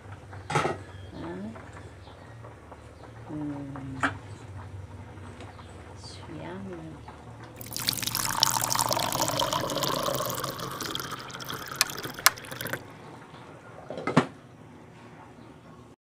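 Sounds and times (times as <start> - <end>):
pouring liquid rush: 7.6 - 12.8.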